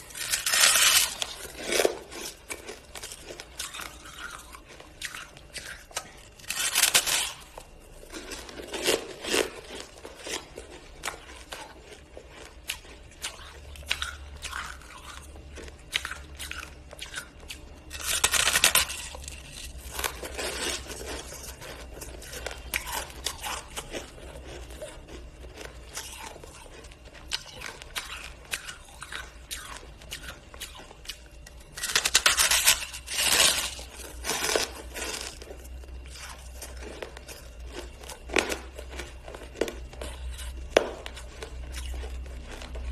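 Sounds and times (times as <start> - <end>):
ice being crunched and chewed: 0.0 - 42.9.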